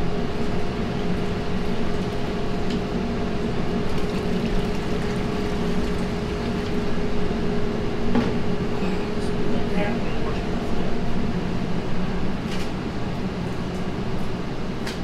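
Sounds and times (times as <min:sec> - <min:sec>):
kitchen machinery humming: 0:00.0 - 0:11.4.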